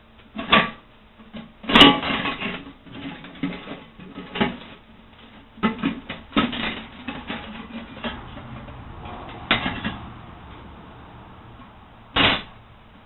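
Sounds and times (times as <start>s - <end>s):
sheet metal clinking and scraping: 1.7s - 10.8s.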